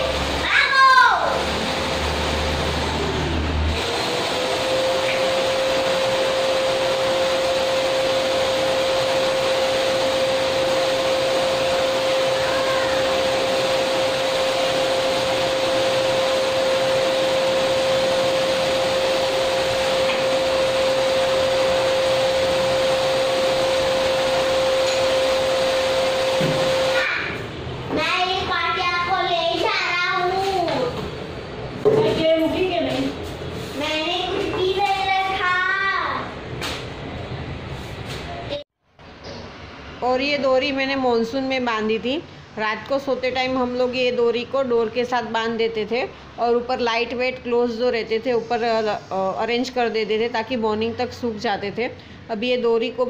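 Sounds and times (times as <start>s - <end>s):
vacuum cleaner running: 0.0s - 27.4s.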